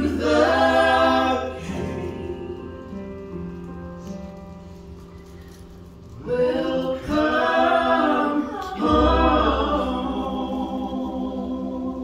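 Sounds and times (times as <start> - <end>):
group singing in harmony: 0.0 - 3.0, 6.2 - 12.0.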